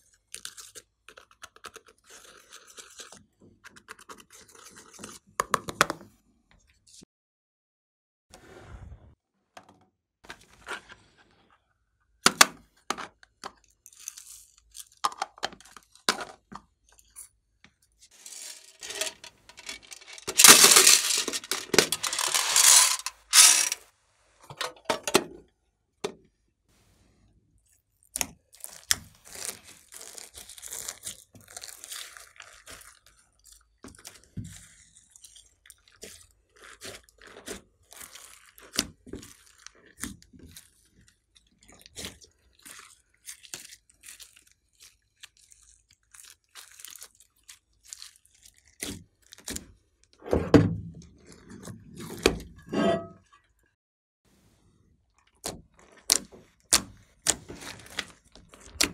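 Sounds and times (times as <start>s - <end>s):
beads pouring rattling: 18.2s - 23.8s
beads clicking and tapping: 19.5s - 23.8s
beads crackling in slime: 19.6s - 23.7s, 28.5s - 33.1s, 42.6s - 48.7s
slime squishing: 27.7s - 49.8s, 55.2s - 58.9s.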